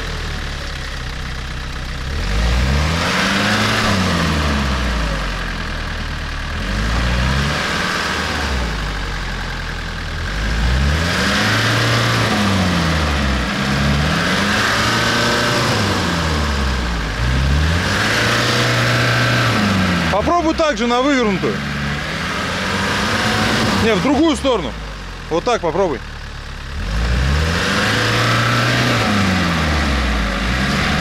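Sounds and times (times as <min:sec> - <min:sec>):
engine revving: 0:00.0 - 0:31.0.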